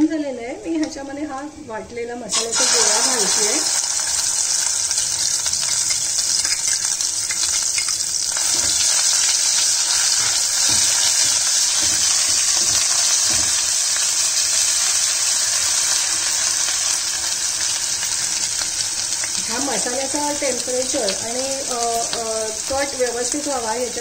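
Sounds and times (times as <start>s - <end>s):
paste sizzling in hot oil: 2.3s - 24.0s
spoon scraping and knocking pan: 2.4s - 13.8s.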